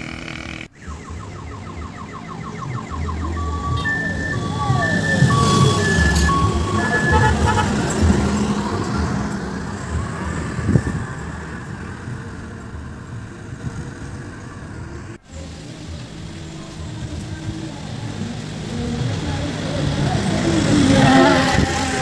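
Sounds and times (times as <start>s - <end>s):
another vehicle engine: 0.0s - 1.2s, 2.6s - 22.0s
vehicle engine passing by: 3.9s - 14.6s, 15.4s - 22.0s.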